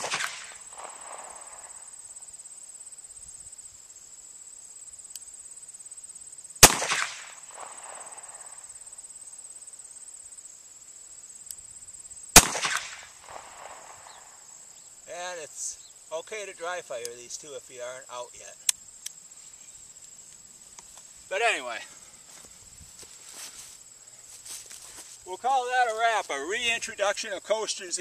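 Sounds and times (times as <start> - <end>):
insects chirring: 0.0 - 28.0.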